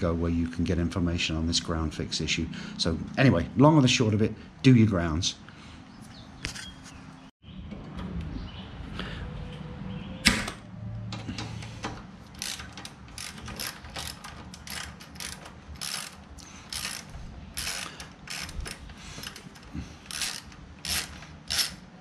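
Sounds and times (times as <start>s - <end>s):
ratchet wrench clicking: 12.2s - 21.9s.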